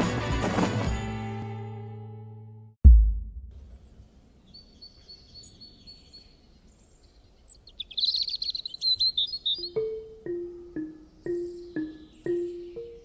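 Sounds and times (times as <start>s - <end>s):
deep boom: 2.8s - 3.9s
outdoor background noise: 3.3s - 13.0s
birds calling: 4.4s - 13.0s
rapid bird chirping: 4.4s - 13.0s
high bird trill: 7.5s - 13.0s.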